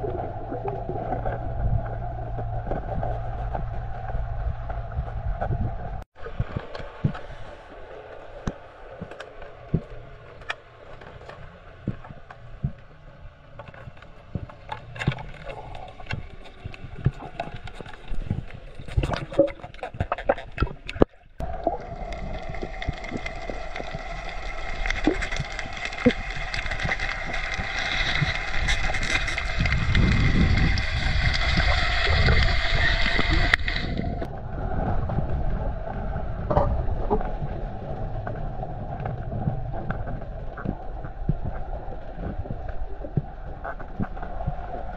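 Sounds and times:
muffled underwater rumble: 0:00.0 - 0:44.9
underwater clicks and knocks: 0:08.4 - 0:34.3.

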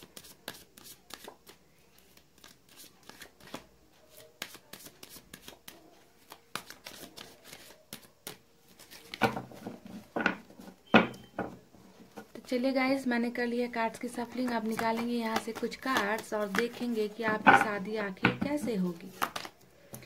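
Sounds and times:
cards being shuffled: 0:00.0 - 0:09.9, 0:14.0 - 0:17.8, 0:18.5 - 0:20.0.

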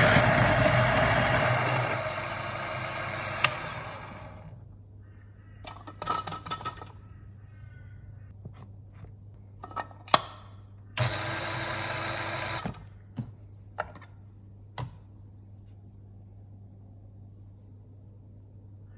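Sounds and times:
coffee grinder motor running: 0:00.0 - 0:04.6, 0:11.0 - 0:12.6.

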